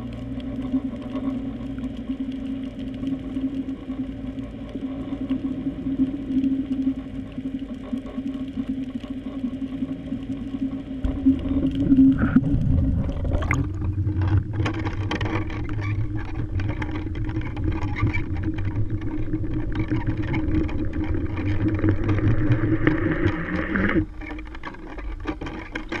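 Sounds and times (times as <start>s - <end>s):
muffled underwater hum: 0.0s - 26.0s
rumble and hiss of water: 0.0s - 26.0s
rush of water: 9.7s - 26.0s.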